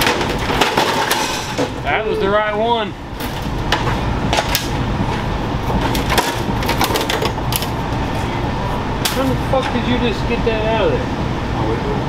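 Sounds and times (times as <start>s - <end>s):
panel cracking and creaking: 0.0s - 1.9s, 3.1s - 8.3s
steady low hum: 0.0s - 12.0s.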